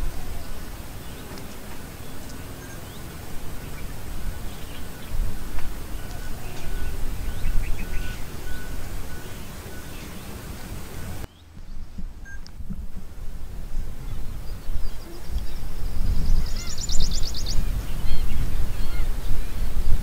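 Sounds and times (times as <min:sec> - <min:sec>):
birds calling: 0:00.0 - 0:20.0
low uneven rumble: 0:00.0 - 0:20.0
thin high whistle: 0:02.3 - 0:11.3.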